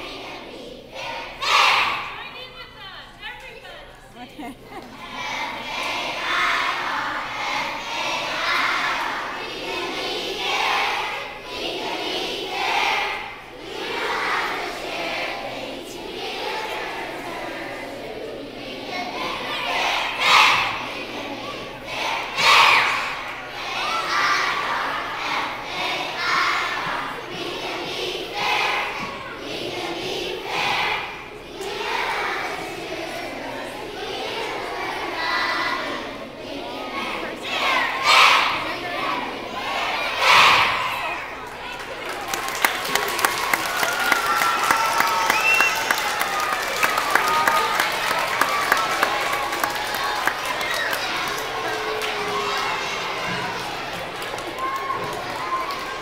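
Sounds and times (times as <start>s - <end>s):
children singing together: 0.0s - 2.2s, 4.4s - 41.4s, 44.6s - 56.0s
children shouting in unison: 39.9s - 41.4s, 43.2s - 56.0s.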